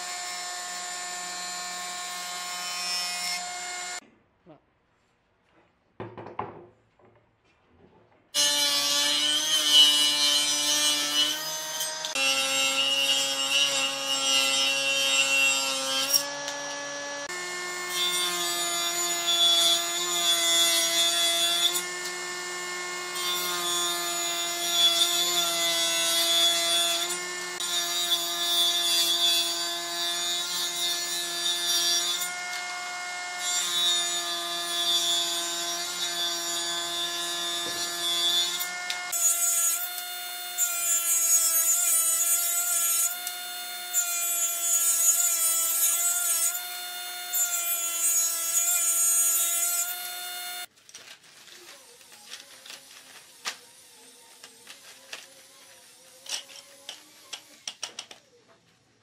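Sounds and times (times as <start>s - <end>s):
table saw cutting wood: 0.0s - 4.0s, 8.4s - 50.7s.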